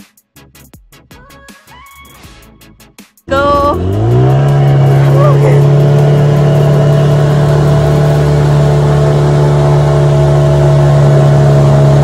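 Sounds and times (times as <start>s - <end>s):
jet ski engine running: 3.3s - 12.0s.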